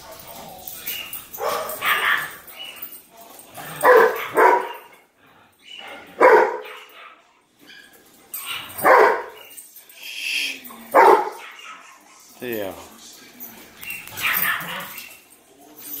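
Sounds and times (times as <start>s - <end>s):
dogs barking: 0.0s - 9.6s, 10.8s - 12.3s, 13.8s - 15.2s.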